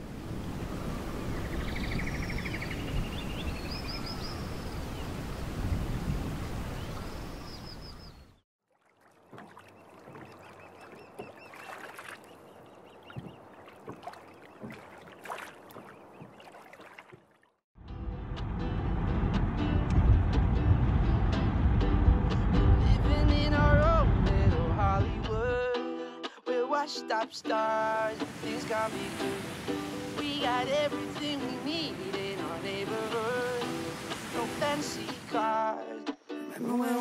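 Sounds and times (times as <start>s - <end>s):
birds chirping and trilling: 0.5s - 8.4s, 9.5s - 16.8s
falling water rushing: 28.1s - 35.4s.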